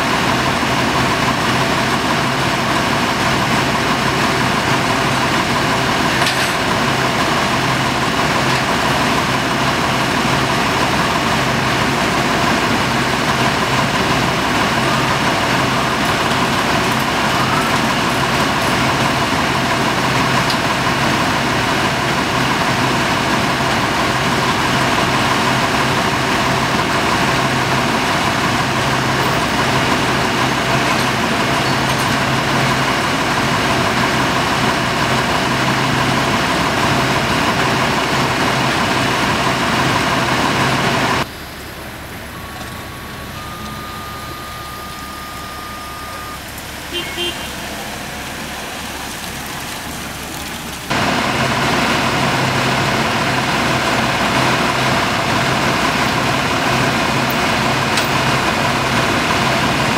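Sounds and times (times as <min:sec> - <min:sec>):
diesel truck engine idling: 0:00.0 - 0:59.9.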